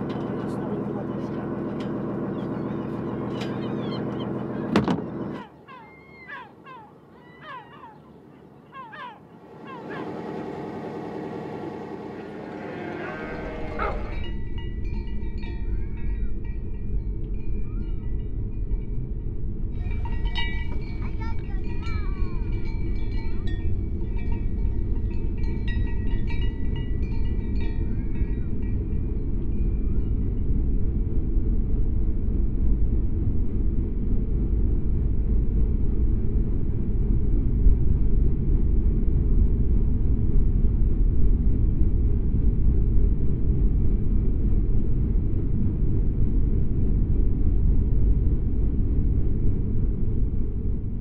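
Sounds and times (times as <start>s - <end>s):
steady low rumble: 0.0s - 5.7s, 9.2s - 51.0s
boat engine drone: 0.0s - 51.0s
gulls calling: 0.2s - 14.6s, 19.8s - 24.3s.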